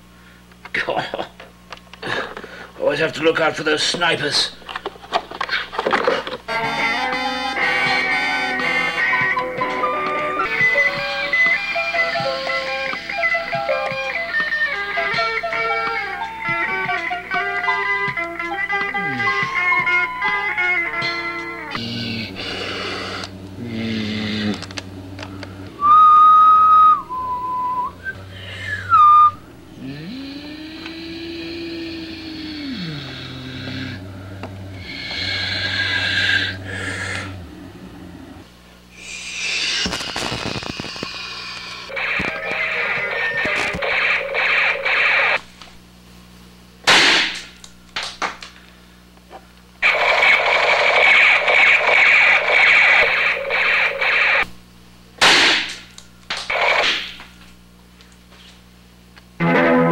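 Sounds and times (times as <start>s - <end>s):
low hum rising in pitch: 20.8s - 38.8s
high whistling tone stepping down: 25.8s - 30.1s
laser beam hiss with whistle: 39.0s - 41.6s.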